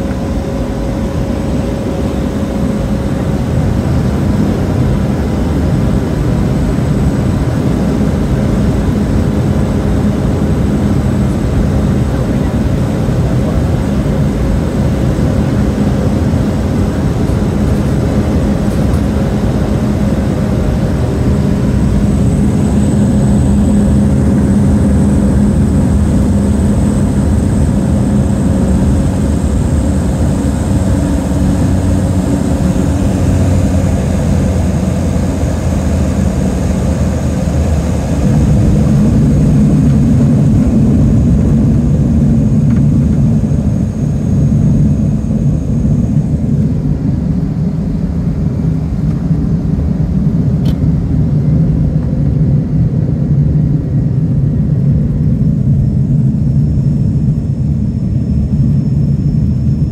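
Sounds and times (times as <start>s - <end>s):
high turbine whine: 0.0s - 59.9s
low propeller drone: 0.0s - 59.9s.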